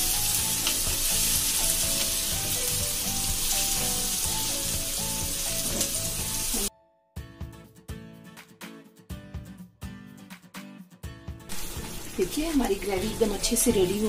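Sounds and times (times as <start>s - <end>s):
onions and tomatoes sizzling: 0.0s - 6.7s, 11.5s - 14.0s
quiet background music: 0.0s - 8.1s, 11.2s - 14.0s.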